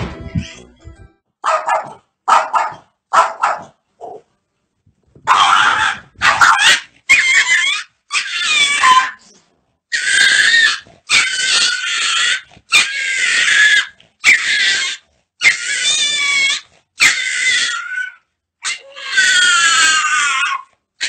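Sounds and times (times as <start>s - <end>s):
animal squealing cries: 5.3s - 9.3s, 9.9s - 20.7s.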